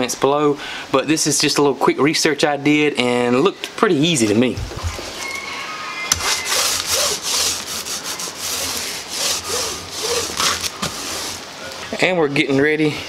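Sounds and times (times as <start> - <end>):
paint roller rasping on plastic sheet: 6.1 - 11.5.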